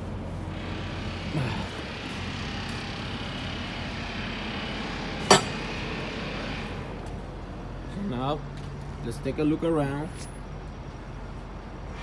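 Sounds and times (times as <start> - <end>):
metallic clank of truck hood: 5.2 - 5.6.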